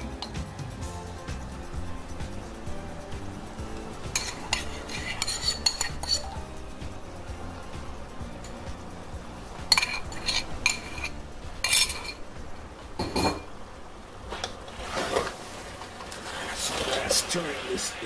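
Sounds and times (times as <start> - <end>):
low steady hum: 0.0 - 18.0
metal spoon scraping cookware: 4.0 - 6.4, 9.7 - 12.2.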